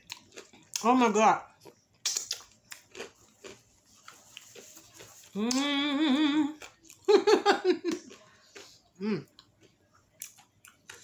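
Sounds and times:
woman humming mmm: 5.4 - 6.6, 9.0 - 9.3.

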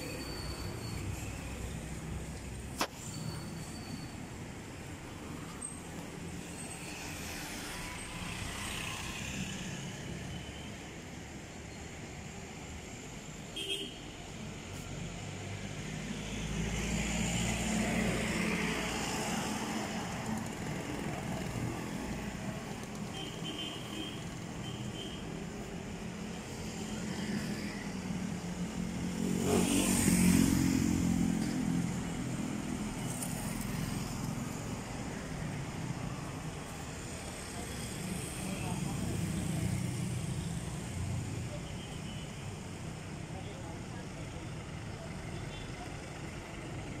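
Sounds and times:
motorcycles passing: 6.1 - 10.2, 25.3 - 41.5.

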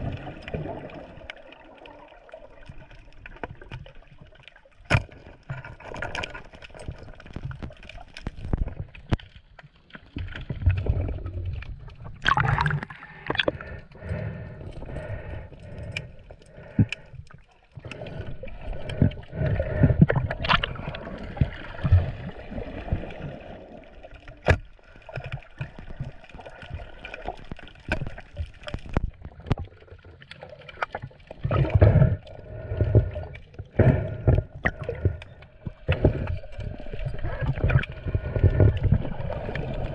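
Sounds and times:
water sloshing and gurgling: 0.0 - 39.9
water splashes: 0.0 - 39.9.

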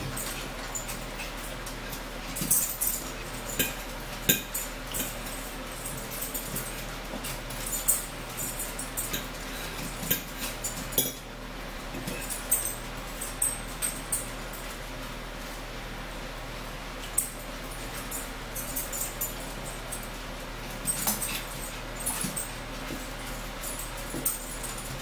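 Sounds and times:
forks clinking on plates: 0.0 - 11.3
low room hum: 0.0 - 25.0.

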